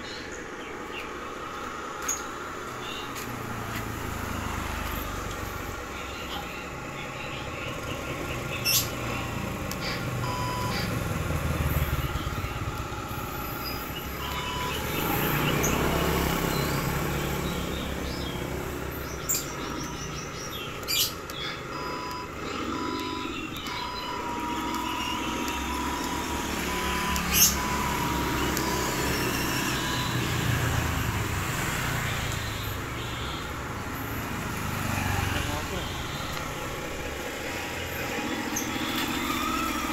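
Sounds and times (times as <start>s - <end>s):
toy truck drive humming: 7.8s - 17.7s, 18.5s - 39.9s.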